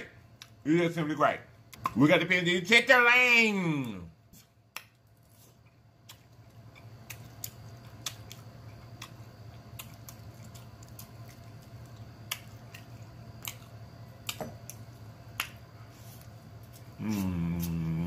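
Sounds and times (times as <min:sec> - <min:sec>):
low steady hum: 0:00.0 - 0:18.0
chewing with wet mouth clicks: 0:04.7 - 0:15.7.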